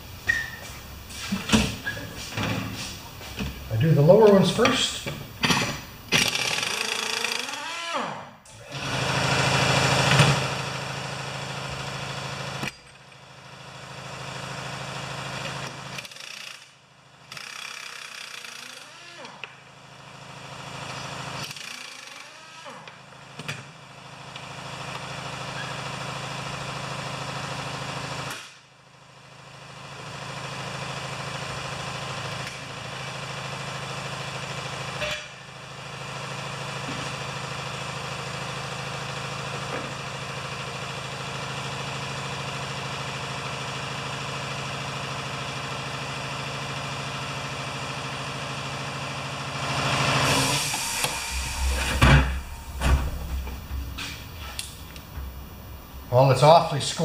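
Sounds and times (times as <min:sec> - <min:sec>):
motor humming: 0:50.2 - 0:56.1.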